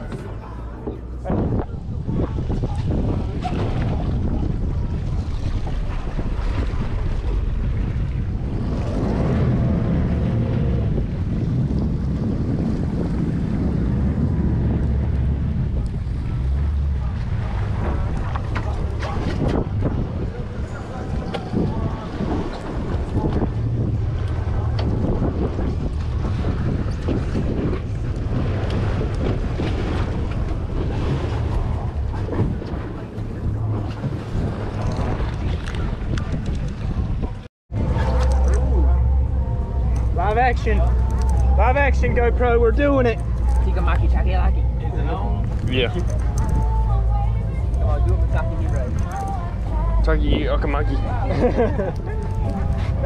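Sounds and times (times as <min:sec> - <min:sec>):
water washing along boat hull: 0:00.0 - 0:53.0
wind buffeting microphone: 0:00.0 - 0:53.0.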